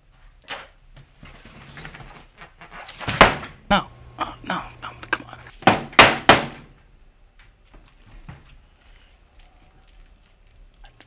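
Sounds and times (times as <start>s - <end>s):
rustling of handled things: 7.4s - 11.0s.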